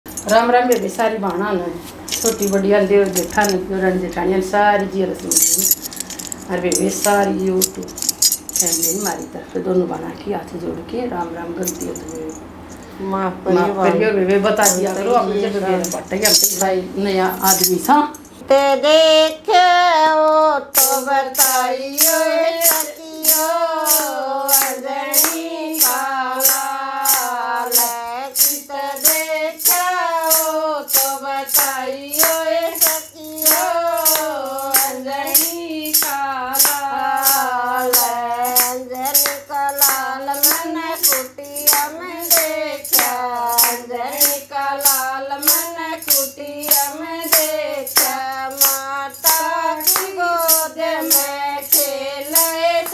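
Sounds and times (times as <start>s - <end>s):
women singing devotional song: 0.2s - 10.2s, 13.5s - 52.9s
plastic jingle clapper: 2.1s - 3.6s, 5.2s - 9.2s
hand claps: 23.3s - 26.6s, 31.6s - 35.0s, 36.0s - 36.9s, 37.9s - 43.9s, 45.5s - 51.2s.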